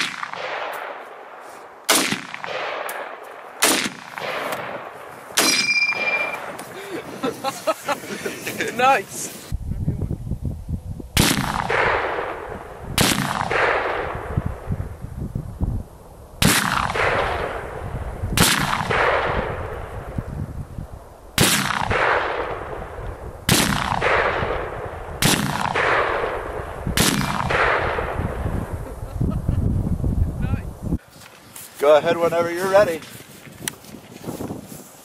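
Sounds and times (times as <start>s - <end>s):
rifle shots ringing out: 0.0s - 6.6s, 11.2s - 14.5s, 16.4s - 17.8s, 18.4s - 20.0s, 21.4s - 28.3s.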